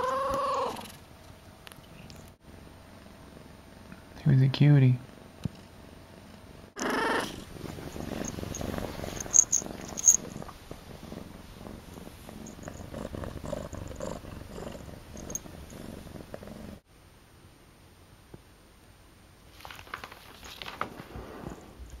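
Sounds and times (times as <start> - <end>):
kitten purring: 5.5 - 16.8.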